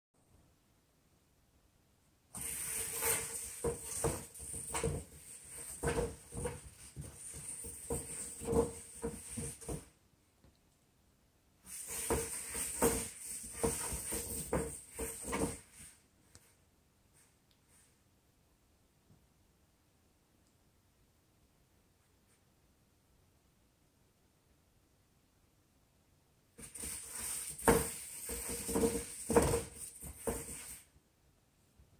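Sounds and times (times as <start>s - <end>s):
cardboard scratcher scraping on floor: 2.3s - 9.9s, 11.7s - 16.0s, 26.6s - 30.9s.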